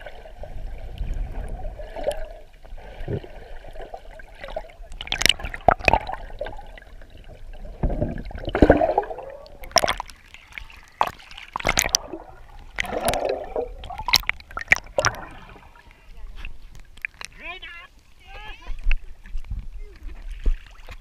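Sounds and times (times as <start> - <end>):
bubbles: 0.0 - 15.9
water sloshing and gurgling: 0.0 - 21.0.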